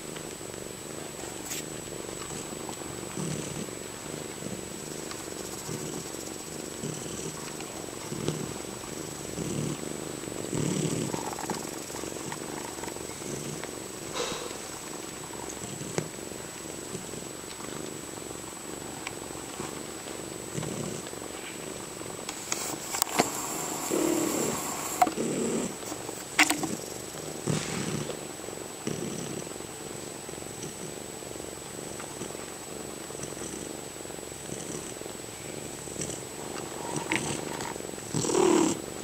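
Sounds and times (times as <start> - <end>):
cats purring: 0.0 - 39.0.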